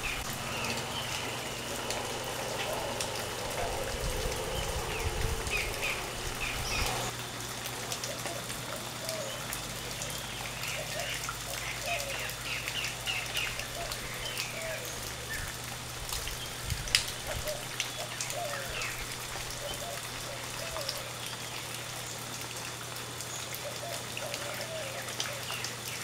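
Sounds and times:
steady low hum: 0.0 - 7.5.

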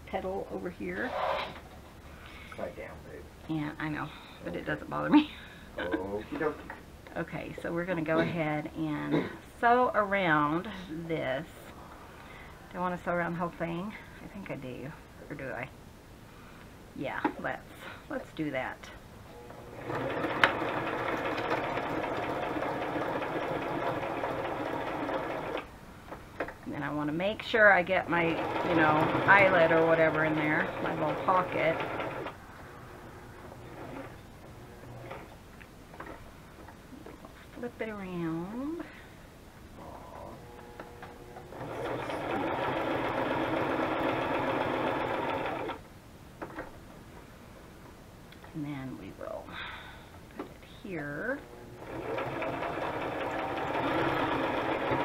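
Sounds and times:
electric sewing machine running: 19.4 - 25.7, 28.0 - 32.4, 33.4 - 35.3, 40.4 - 45.8, 51.4 - 55.0.

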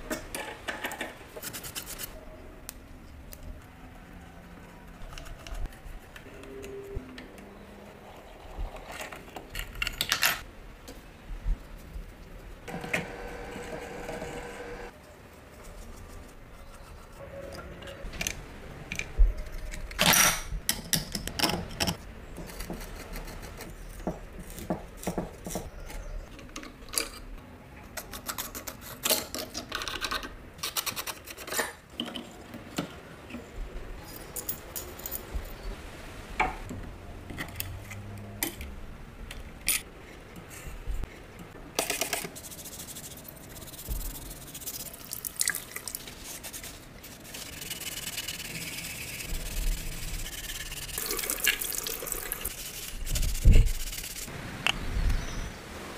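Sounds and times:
bristle brush scrubbing: 42.2 - 45.2, 45.8 - 54.3
running water hiss: 47.2 - 55.9.

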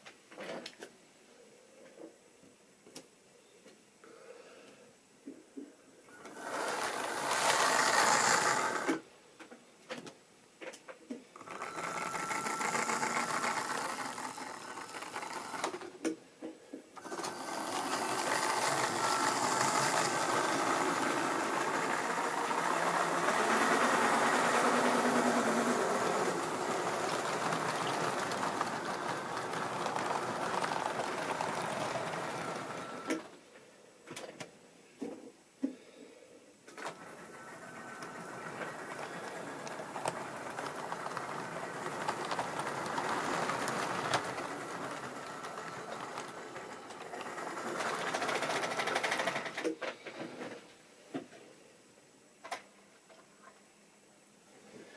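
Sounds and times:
model train motor whirring: 6.2 - 9.0, 11.4 - 16.0, 17.0 - 33.3, 36.8 - 49.7
wheels rattling on track: 18.2 - 33.2, 39.5 - 49.5.

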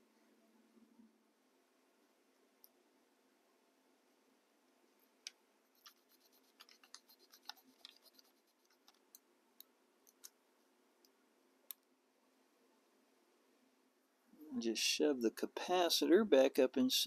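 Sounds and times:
pencil scratching and ticking: 5.6 - 9.2.

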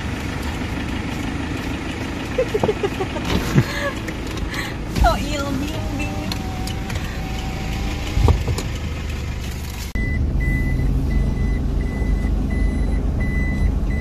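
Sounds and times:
car road rumble: 0.0 - 14.0
diesel engine humming: 0.0 - 14.0
reverse warning beeps: 10.0 - 14.0.

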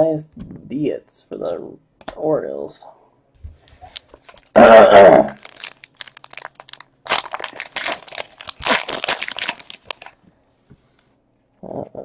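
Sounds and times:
foil wrapper crinkling: 3.7 - 4.6, 5.3 - 10.2.

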